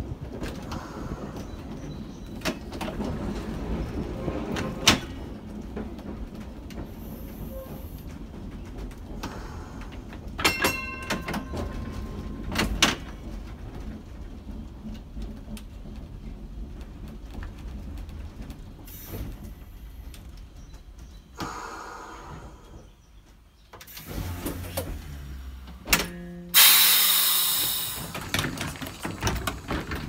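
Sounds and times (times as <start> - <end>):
streetcar rumbling: 0.0 - 30.0
metallic clanks and knocks: 10.2 - 14.0.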